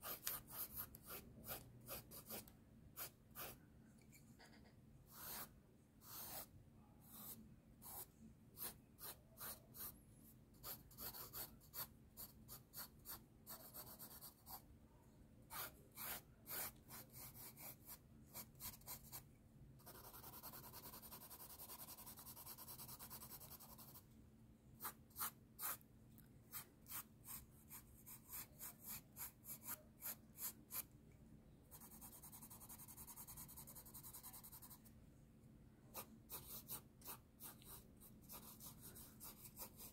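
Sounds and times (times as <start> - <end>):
pencil scratching on paper: 0.0 - 3.6, 4.4 - 14.6, 15.5 - 19.2, 19.8 - 24.0, 24.8 - 25.8, 26.5 - 30.9, 31.7 - 34.8, 35.9 - 39.9.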